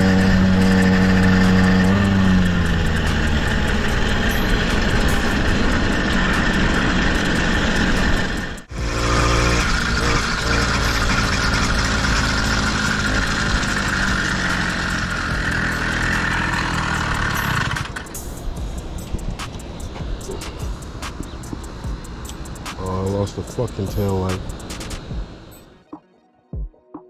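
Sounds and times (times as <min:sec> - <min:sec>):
small gasoline engine running: 0:00.0 - 0:19.0.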